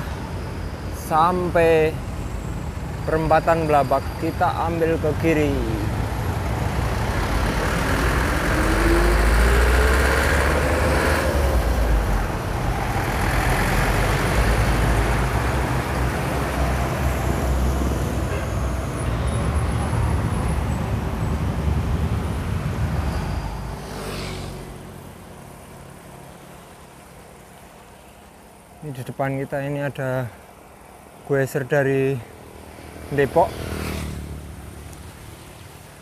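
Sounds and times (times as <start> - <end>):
road traffic rumble: 0.0 - 36.0
vehicle engine accelerating: 6.0 - 25.0.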